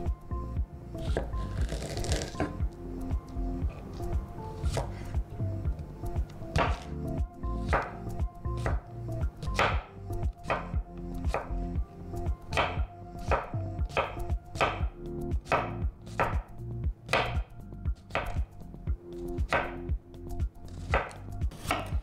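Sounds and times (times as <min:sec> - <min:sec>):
knife slicing cucumber on board: 0:01.0 - 0:02.6, 0:04.6 - 0:05.1, 0:06.5 - 0:06.9, 0:07.6 - 0:08.0, 0:12.6 - 0:14.8, 0:18.0 - 0:18.4, 0:20.8 - 0:22.0.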